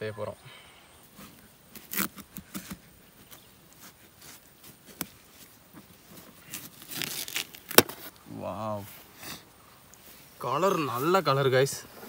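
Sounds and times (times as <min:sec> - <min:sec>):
knife cutting watermelon: 0:01.2 - 0:05.5.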